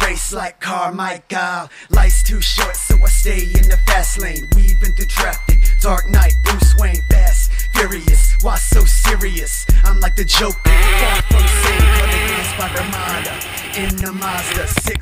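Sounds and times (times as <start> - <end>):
hip hop music: 0.0 - 15.0
deep bass hits: 10.7 - 12.2.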